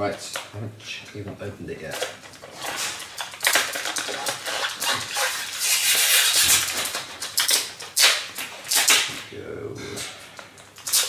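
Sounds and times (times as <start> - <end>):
plastic wrapping crinkling: 1.8 - 9.2.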